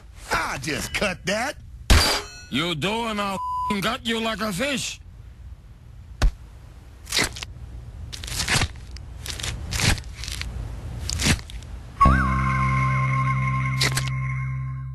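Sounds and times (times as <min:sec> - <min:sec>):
cartoon crunching bites: 0:07.0 - 0:11.7, 0:13.8 - 0:14.1
electronic music: 0:12.0 - 0:14.9.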